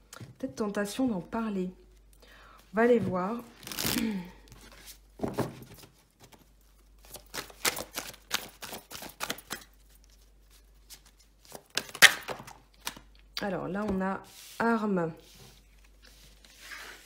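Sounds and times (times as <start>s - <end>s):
cards being shuffled: 5.7s - 13.1s.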